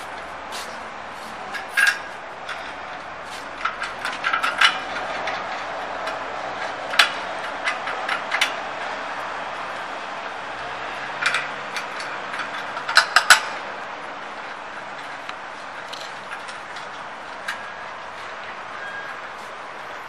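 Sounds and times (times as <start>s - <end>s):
steady background noise: 0.0s - 20.0s
metal clicks and light knocks: 1.5s - 9.8s, 11.2s - 13.6s, 14.4s - 18.6s.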